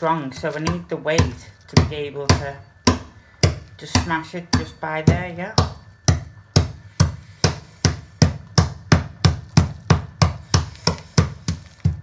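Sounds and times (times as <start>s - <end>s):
metal bar pounding dry kibble: 0.0s - 12.0s.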